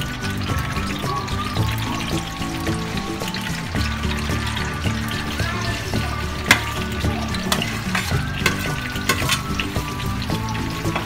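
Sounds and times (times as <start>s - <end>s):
food sizzling in hot oil: 0.0s - 11.0s
metal spoon clinking on pan: 6.5s - 9.6s.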